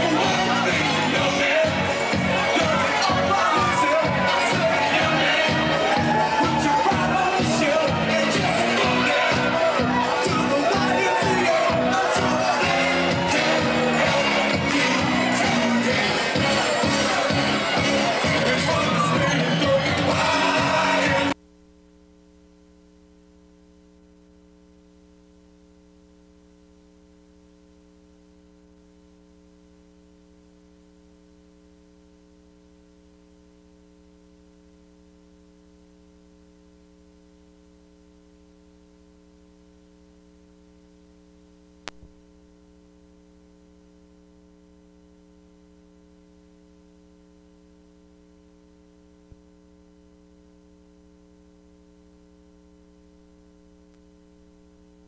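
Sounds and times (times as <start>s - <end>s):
faint electrical hum: 21.4s - 55.0s.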